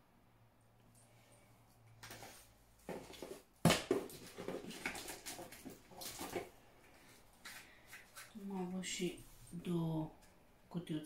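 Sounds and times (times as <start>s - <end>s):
packaging rustling: 2.0s - 8.4s
items knocking against cardboard: 2.1s - 6.5s.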